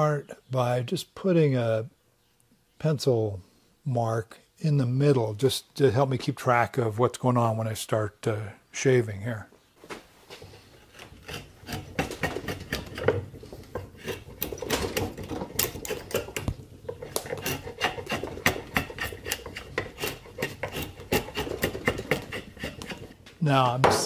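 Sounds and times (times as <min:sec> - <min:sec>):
drawknife scraping wood: 0:10.4 - 0:23.2.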